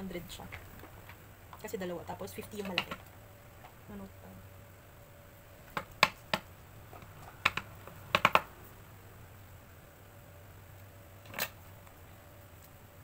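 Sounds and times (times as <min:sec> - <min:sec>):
paper notepads tapping on board: 0:05.7 - 0:06.5, 0:07.3 - 0:08.5.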